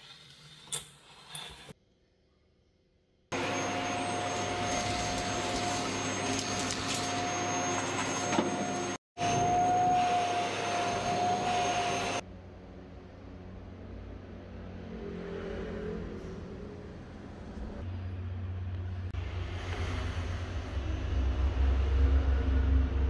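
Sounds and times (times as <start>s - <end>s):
vacuum cleaner whining: 3.3s - 12.2s
low hum: 12.2s - 23.0s.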